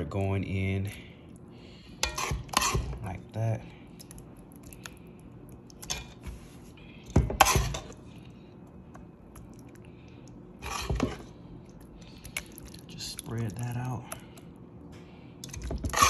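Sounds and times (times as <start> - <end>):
metal spoon scraping a pot: 2.0 - 3.0, 7.4 - 8.0, 10.6 - 11.2.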